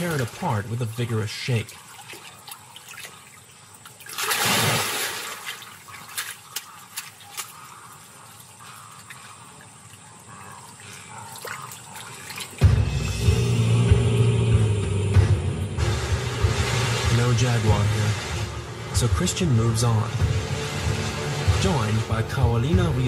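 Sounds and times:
water dripping: 0:00.0 - 0:13.4
water splashing: 0:00.0 - 0:13.4, 0:15.8 - 0:23.0
boat motor rumbling: 0:12.6 - 0:23.0.

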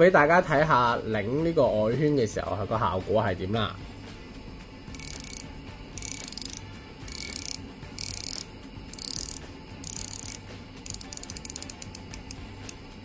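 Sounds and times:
watch bezel ratchet clicking: 0:04.9 - 0:12.9.

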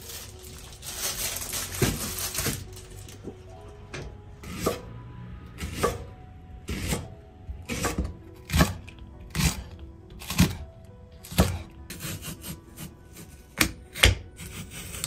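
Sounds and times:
soft background music: 0:00.0 - 0:15.0
knife chopping onion on wooden board: 0:04.4 - 0:04.8, 0:05.6 - 0:06.1, 0:06.7 - 0:07.1, 0:07.7 - 0:10.6, 0:11.2 - 0:15.0.

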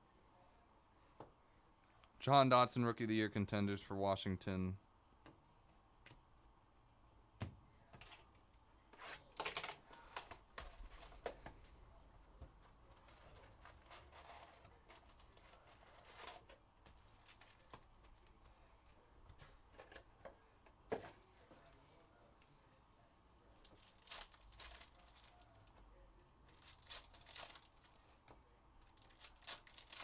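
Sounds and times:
foil card packs rustling: 0:13.0 - 0:18.2, 0:23.6 - 0:25.5, 0:26.5 - 0:28.2, 0:28.8 - 0:30.0.

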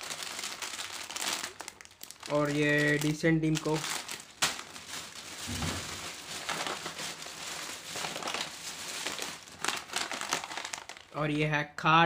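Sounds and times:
plastic bag crinkling: 0:00.0 - 0:11.3
soft thump: 0:05.4 - 0:06.0.

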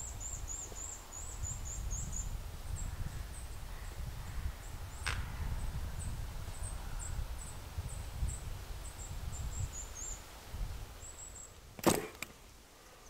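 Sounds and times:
songbird high-pitched chirps: 0:00.0 - 0:04.0, 0:04.6 - 0:10.3.

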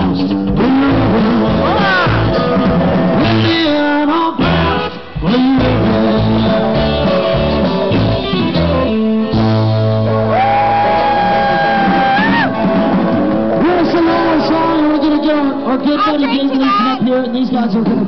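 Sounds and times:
person singing: 0:00.0 - 0:07.8
guitar: 0:00.0 - 0:18.0
live band playing: 0:00.0 - 0:18.0.

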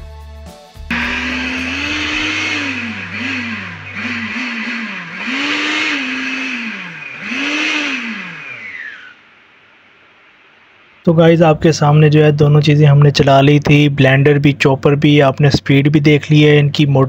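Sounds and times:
blender motor whine: 0:00.9 - 0:10.6.

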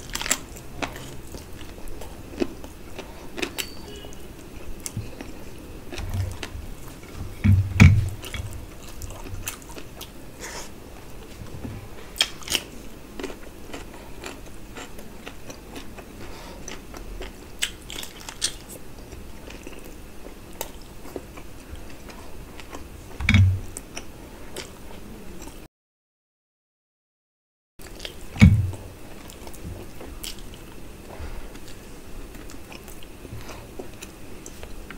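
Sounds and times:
chewing with wet smacks: 0:00.0 - 0:11.4, 0:12.2 - 0:22.9, 0:23.7 - 0:25.6, 0:27.8 - 0:34.9
low thumps: 0:07.2 - 0:08.6, 0:23.2 - 0:23.7, 0:28.4 - 0:28.9.

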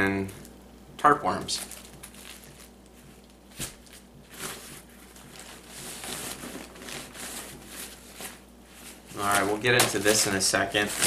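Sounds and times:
fabric gear crinkling and rustling: 0:01.5 - 0:11.0.

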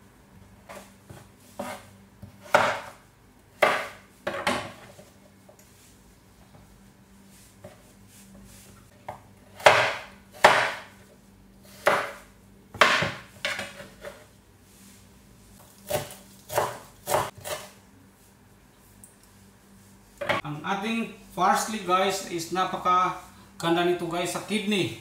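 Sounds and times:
knife chopping on cutting board: 0:00.7 - 0:03.0, 0:03.6 - 0:04.9, 0:09.1 - 0:11.0, 0:11.7 - 0:12.2, 0:12.8 - 0:14.2, 0:15.9 - 0:17.7.

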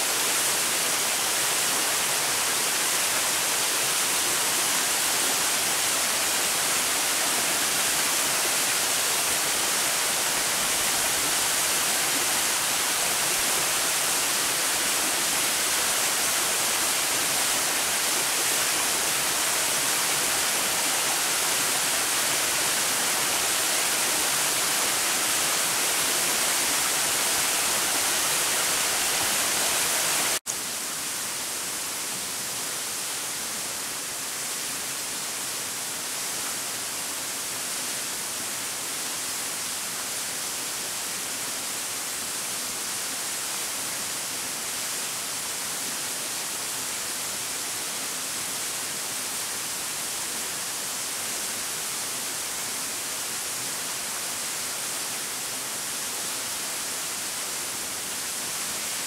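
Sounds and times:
waterfall rushing: 0:00.0 - 0:30.4.

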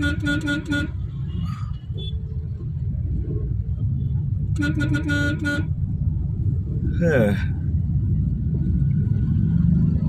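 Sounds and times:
vehicle horn toots: 0:00.0 - 0:01.0, 0:04.6 - 0:05.7.

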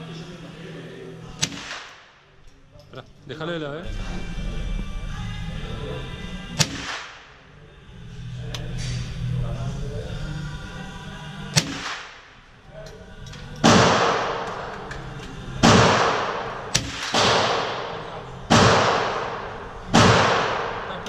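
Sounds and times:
sharp thin crack: 0:01.4 - 0:02.1, 0:06.6 - 0:07.3, 0:11.6 - 0:12.3, 0:16.8 - 0:17.7
rifle shots echoing: 0:01.4 - 0:02.2, 0:06.6 - 0:07.4, 0:11.6 - 0:12.4, 0:13.6 - 0:14.8, 0:15.6 - 0:21.0.

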